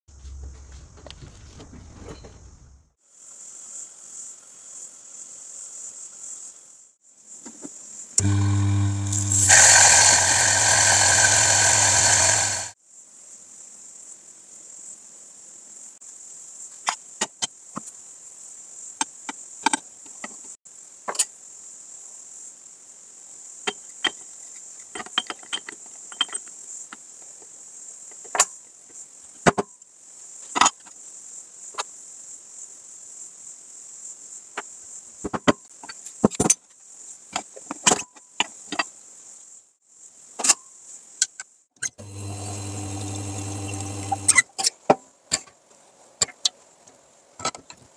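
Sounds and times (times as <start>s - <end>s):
espresso machine pump humming: 8.2s - 12.7s, 42.0s - 44.4s.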